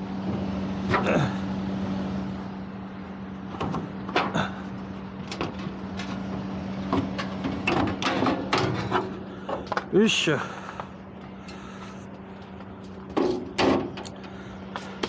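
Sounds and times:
low hum: 0:00.0 - 0:15.0
metal parts knocking and clattering: 0:07.0 - 0:09.9, 0:13.1 - 0:14.3.

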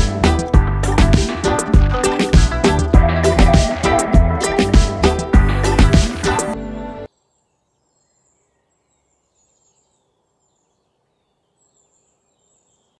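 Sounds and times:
music: 0:00.0 - 0:07.1.

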